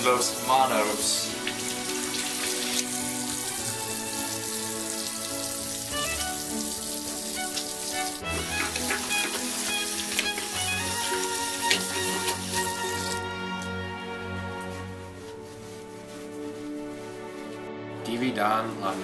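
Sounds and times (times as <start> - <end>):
tap water running into sink: 0.0 - 13.7
hands rinsed under water: 0.0 - 13.8
background music: 0.0 - 19.0.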